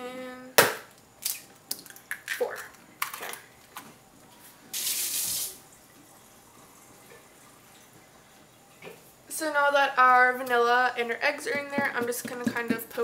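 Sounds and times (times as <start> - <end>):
egg shells cracking against bowl: 0.6 - 3.8.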